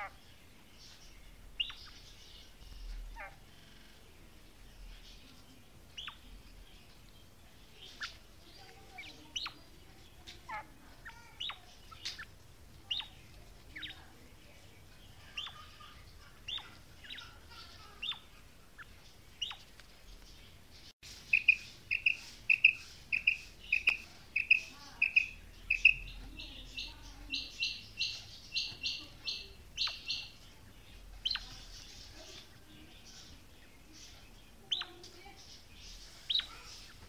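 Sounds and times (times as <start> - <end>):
quail calling: 21.3 - 30.4.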